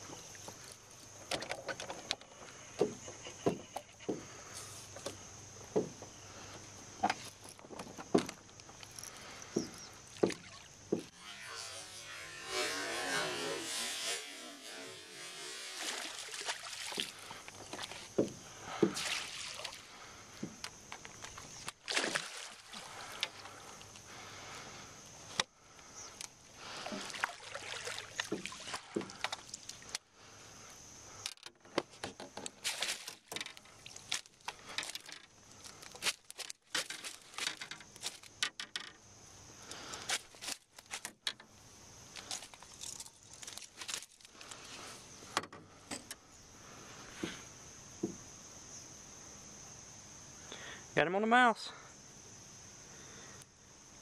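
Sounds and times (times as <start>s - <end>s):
fish splashing in water: 15.8s - 18.1s, 18.8s - 19.9s, 21.7s - 23.2s, 26.8s - 29.8s
clicks and knocks of landing net: 36.0s - 39.0s.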